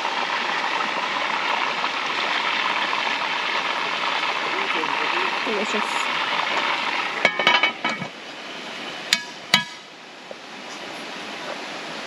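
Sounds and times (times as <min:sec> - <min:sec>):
creek water rushing: 0:00.0 - 0:12.0
metal cookware clinking: 0:07.2 - 0:08.1.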